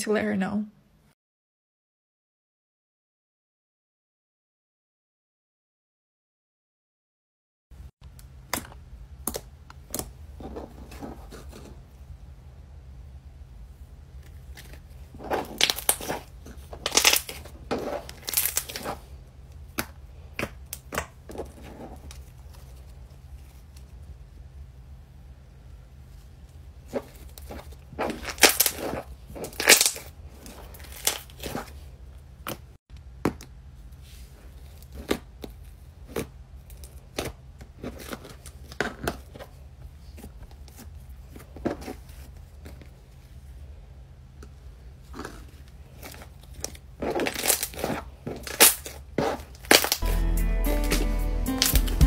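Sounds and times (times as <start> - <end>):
slime crackling and popping: 14.6 - 19.1, 26.9 - 31.7, 46.0 - 50.0.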